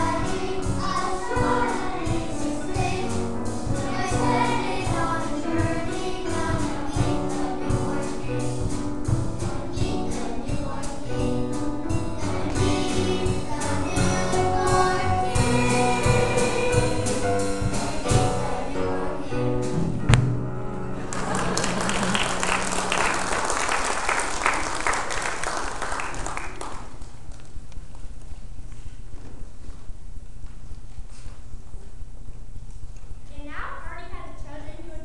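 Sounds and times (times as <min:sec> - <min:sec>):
choir singing with instruments: 0:00.0 - 0:20.0
congregation applauding: 0:21.0 - 0:27.4.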